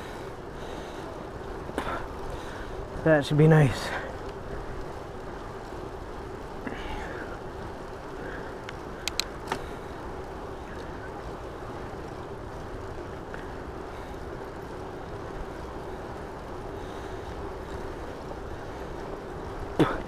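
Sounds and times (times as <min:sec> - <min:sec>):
bicycle rolling on pavement: 0:00.0 - 0:20.0
faint steady hum: 0:00.0 - 0:20.0
sharp clicks: 0:08.6 - 0:09.6.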